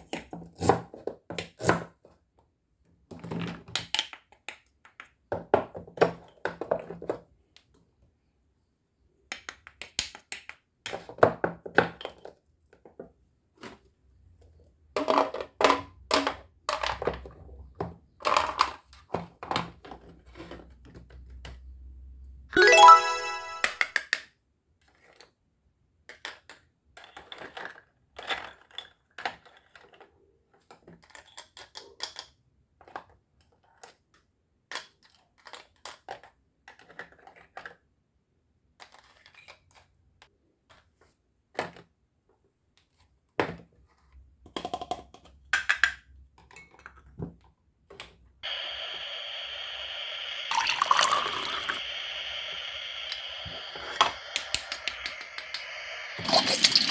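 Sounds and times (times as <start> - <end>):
liquid pouring with hiss: 48.4 - 56.9.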